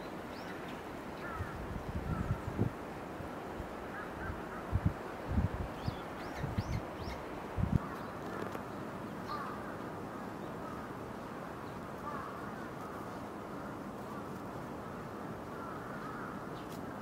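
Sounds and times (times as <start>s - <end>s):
steady background hiss: 0.0s - 17.0s
crow cawing: 3.9s - 4.7s, 9.3s - 9.8s, 12.0s - 13.0s, 15.6s - 16.5s.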